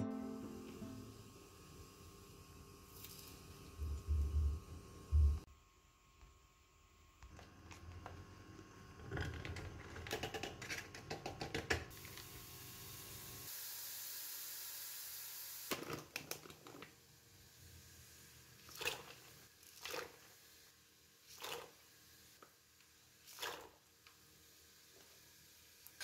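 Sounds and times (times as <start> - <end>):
meat sizzling in a pan: 12.0 - 15.8.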